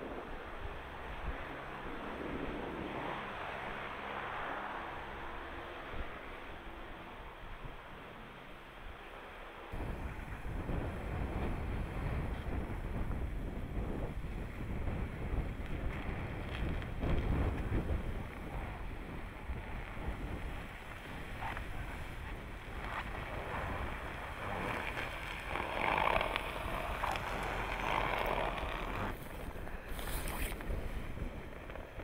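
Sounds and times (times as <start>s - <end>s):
car driving over packed snow: 0.0s - 32.0s
wind buffeting microphone: 9.7s - 32.0s.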